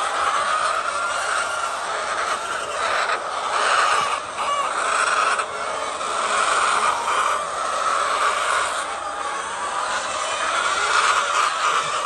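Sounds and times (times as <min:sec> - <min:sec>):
hens clucking: 0:00.0 - 0:12.0.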